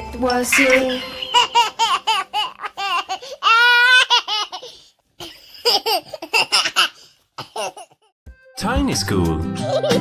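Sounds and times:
cartoon character laughing: 1.2 - 4.6, 9.6 - 10.0.

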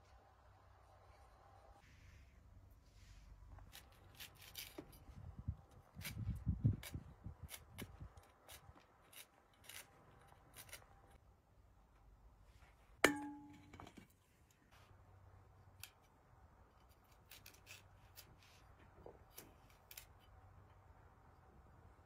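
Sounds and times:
knife cutting crisp vegetable: 3.6 - 5.0, 16.8 - 20.2.

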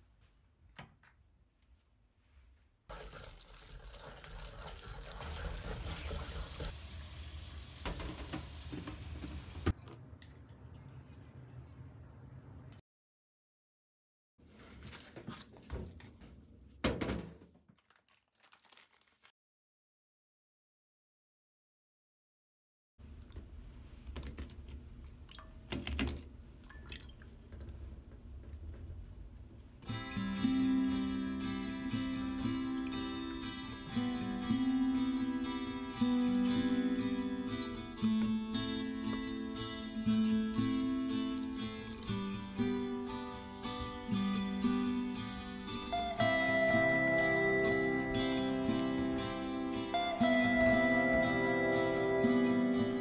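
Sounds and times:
paste mixed by hand in bowl: 2.9 - 6.8, 35.7 - 49.7
small water splashes: 26.6 - 27.8, 41.4 - 46.0.

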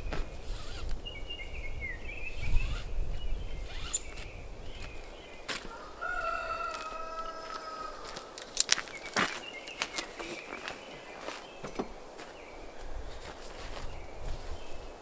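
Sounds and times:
rooster crowing: 5.6 - 8.4.

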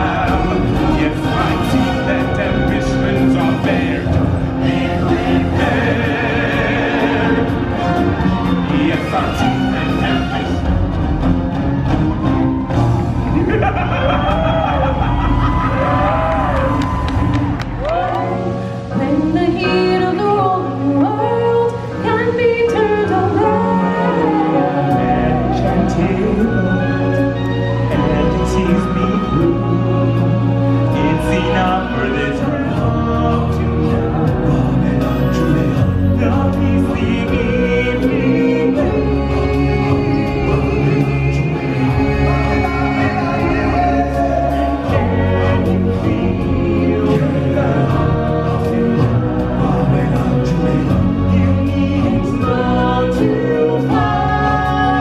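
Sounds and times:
band playing: 0.0 - 19.0, 23.1 - 55.0
choir singing: 0.0 - 55.0
musical backing: 0.0 - 55.0
performers singing with band: 0.0 - 55.0.

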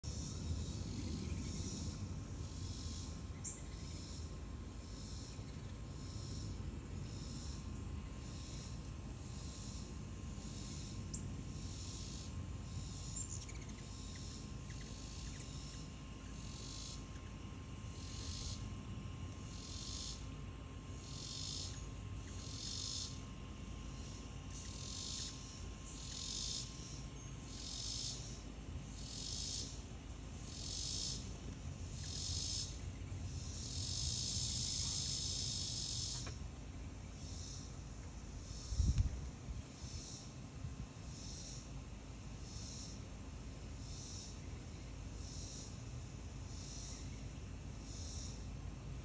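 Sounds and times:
insect chorus buzzing: 0.0 - 49.0.

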